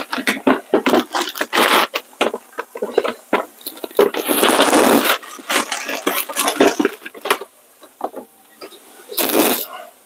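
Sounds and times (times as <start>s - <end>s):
loud scraping rustle: 0.0s - 7.5s.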